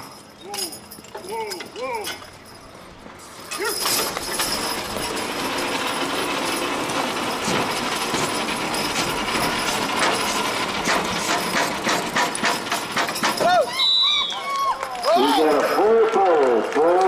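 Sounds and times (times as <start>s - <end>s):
chains and harness clanking: 0.0s - 13.9s, 14.8s - 15.9s
sled rumbling and scraping on dirt: 2.8s - 13.7s.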